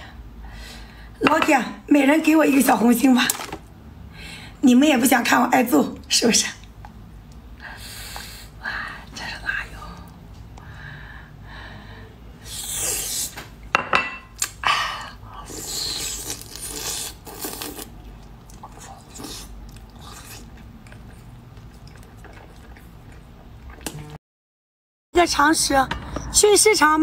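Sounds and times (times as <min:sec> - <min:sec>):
person chewing crunchy food: 0:15.5 - 0:24.2.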